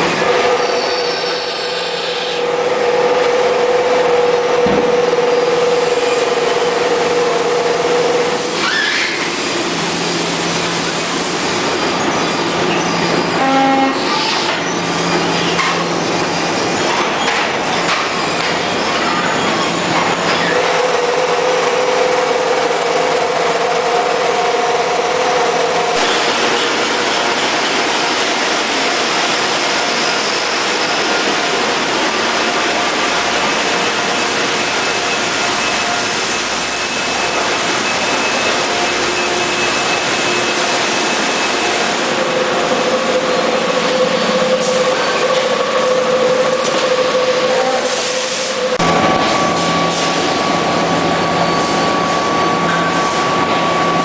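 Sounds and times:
conveyor machinery din: 0:00.0 - 0:54.0
metallic squeals and clatter: 0:00.2 - 0:02.4, 0:08.4 - 0:10.8, 0:11.7 - 0:21.1, 0:23.9 - 0:31.8, 0:32.4 - 0:54.0
machine whine: 0:17.9 - 0:54.0.

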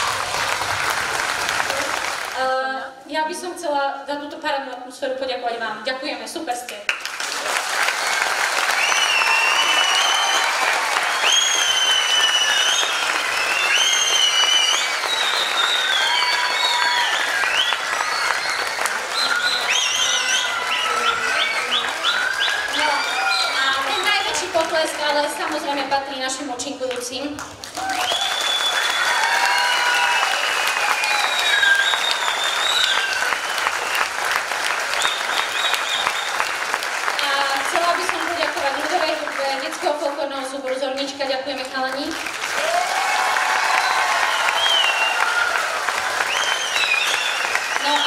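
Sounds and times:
children cheering: 0:00.0 - 0:02.3, 0:07.3 - 0:25.7, 0:27.7 - 0:37.2, 0:42.4 - 0:48.0
audience applauding: 0:00.0 - 0:02.6, 0:06.9 - 0:48.0.

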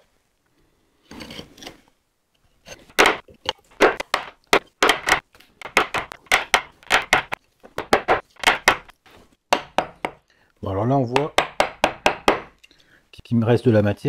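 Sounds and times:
mallet striking chisel: 0:03.8 - 0:08.9, 0:09.5 - 0:10.2, 0:11.1 - 0:12.5.

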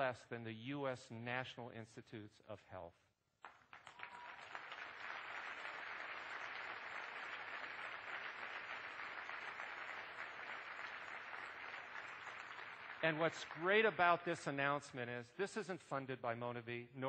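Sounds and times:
audience applauding: 0:03.4 - 0:14.1.

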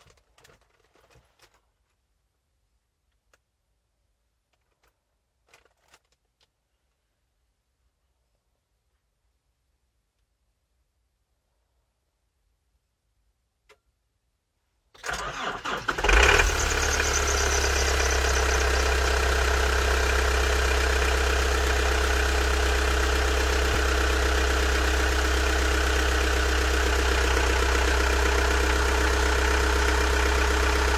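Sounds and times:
diesel engine idling: 0:15.2 - 0:30.9.

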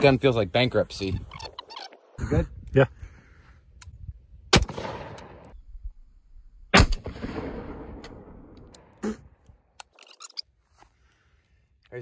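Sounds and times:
rifle shots echoing: 0:04.5 - 0:05.5, 0:06.7 - 0:08.9.

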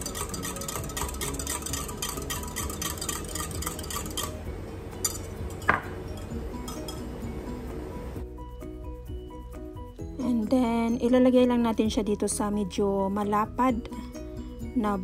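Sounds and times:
whisk clinking against glass: 0:00.0 - 0:07.1.

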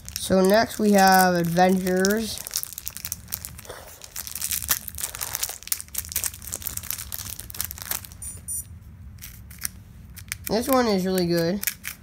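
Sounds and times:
plastic wrapper crinkling and tearing: 0:00.0 - 0:08.3
wristwatch high-pitched beep: 0:08.2 - 0:08.7.

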